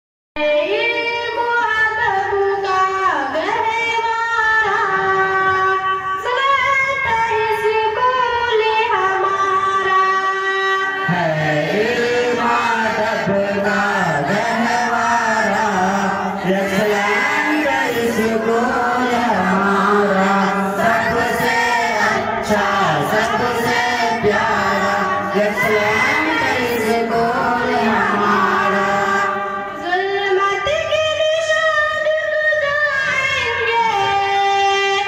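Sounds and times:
girl singing into a microphone: 0.4 - 11.1, 29.7 - 35.0
boy singing: 0.4 - 12.8, 13.4 - 35.0.

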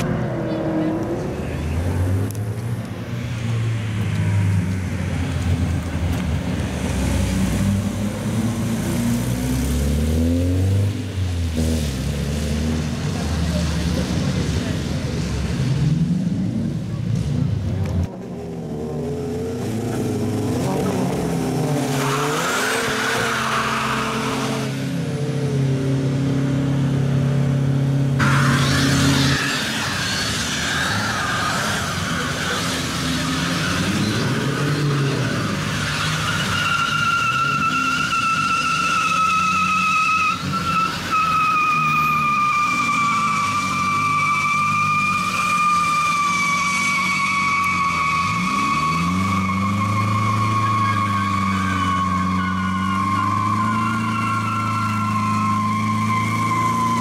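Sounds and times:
car engines revving hard: 0.0 - 57.0
tyre squeal: 28.2 - 57.0.

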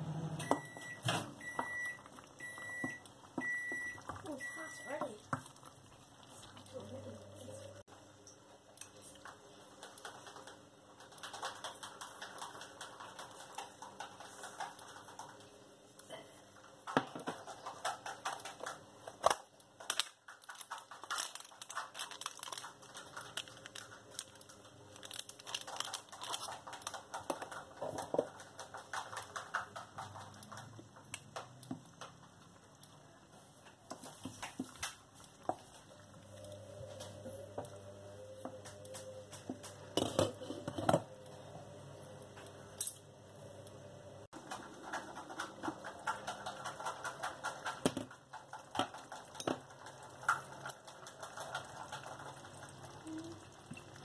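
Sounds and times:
plastic bag crinkling: 19.4 - 30.7
wooden spoon scraping pot: 40.0 - 41.0.

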